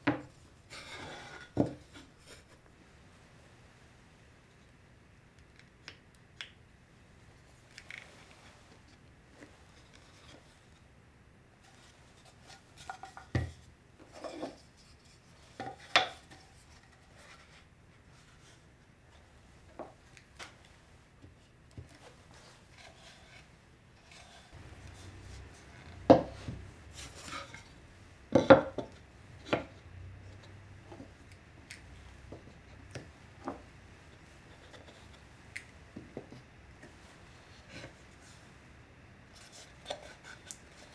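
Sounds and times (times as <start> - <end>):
wood knocking on wood: 26.0 - 26.6.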